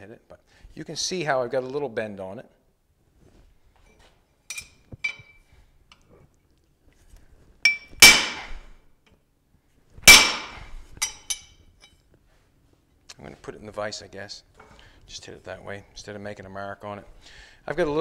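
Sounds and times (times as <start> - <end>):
hammer striking steel punch: 7.7 - 8.6, 10.1 - 11.5.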